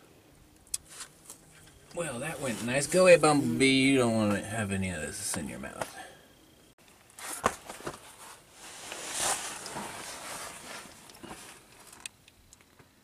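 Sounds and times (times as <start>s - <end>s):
rustling and scraping handling noise: 0.8s - 3.6s, 7.0s - 12.1s.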